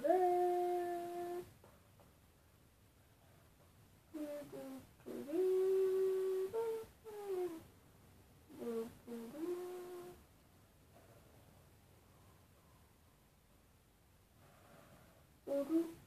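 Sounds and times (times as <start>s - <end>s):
boy humming: 0.0s - 1.5s, 4.1s - 7.6s, 8.5s - 10.2s, 15.5s - 16.0s.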